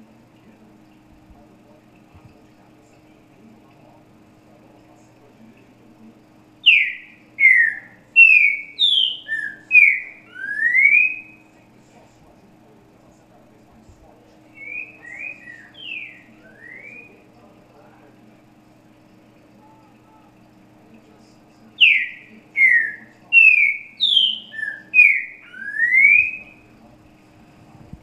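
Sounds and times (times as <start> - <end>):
bird singing whistled notes: 6.6 - 11.4, 14.5 - 17.2, 21.8 - 26.6.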